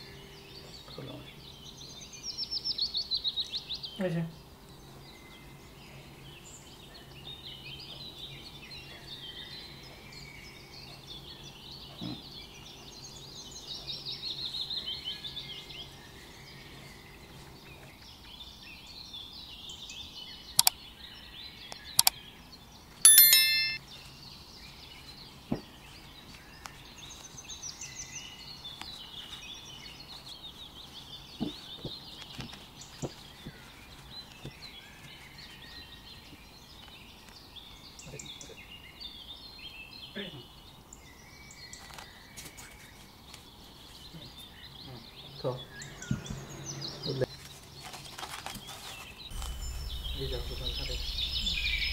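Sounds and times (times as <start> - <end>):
small birds chirping: 0.0 - 51.9
bright bell ding: 23.1 - 23.8, 49.4 - 51.9
faint low hum: 49.3 - 51.9.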